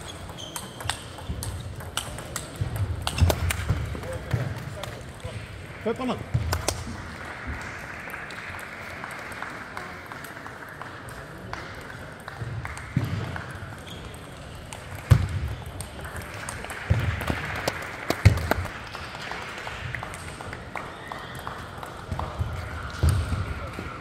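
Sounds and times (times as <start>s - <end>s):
table tennis ball clicking: 0.1s - 3.7s.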